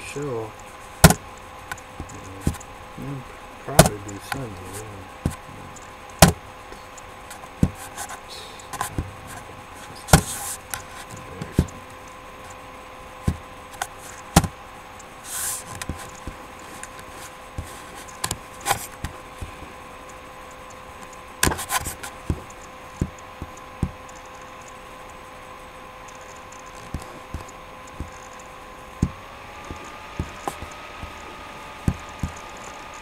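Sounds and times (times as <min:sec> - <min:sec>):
electrical hum: 0:00.0 - 0:33.0
short hiss: 0:15.2 - 0:15.7.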